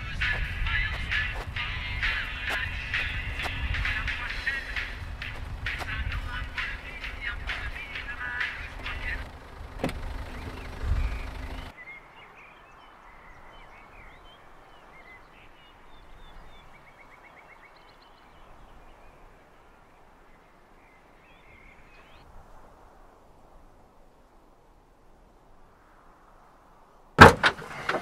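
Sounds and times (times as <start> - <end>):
bird trill: 0.0 - 19.9
small birds chirping: 0.0 - 22.3
low thud: 9.7 - 11.1, 27.2 - 28.0.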